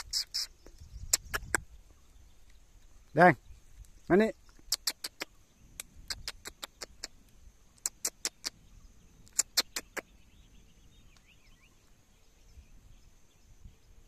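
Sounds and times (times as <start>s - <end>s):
sharp short clicks: 0.0s - 1.7s, 4.6s - 7.2s, 7.8s - 8.6s, 9.3s - 10.1s.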